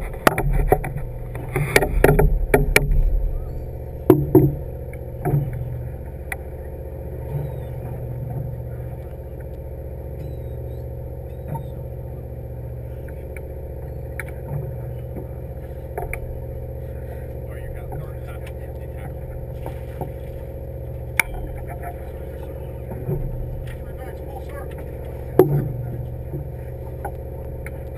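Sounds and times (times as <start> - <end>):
sharp knocks and thumps: 0.0 - 3.4, 4.0 - 5.8, 24.7 - 27.2
boat engine humming: 0.0 - 27.9.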